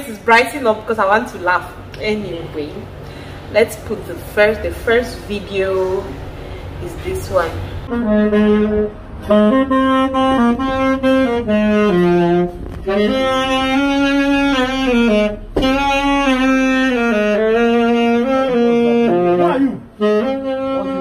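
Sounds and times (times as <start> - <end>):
saxophone melody: 4.8 - 21.0.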